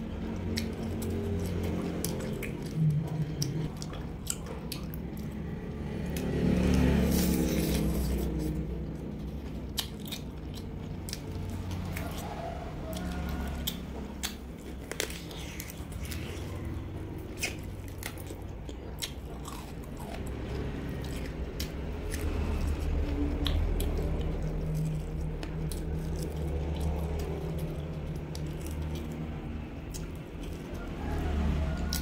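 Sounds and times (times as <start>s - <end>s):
chewing roast duck: 0.0s - 32.0s
steady low hum: 0.0s - 32.0s
crisp crunches and clicks: 13.0s - 32.0s.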